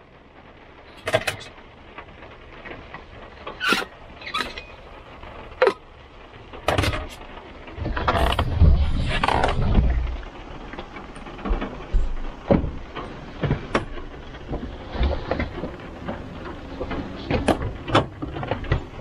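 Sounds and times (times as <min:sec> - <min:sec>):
truck cab rumble: 0:03.4 - 0:19.0
sharp knocks and clunks: 0:11.4 - 0:14.0.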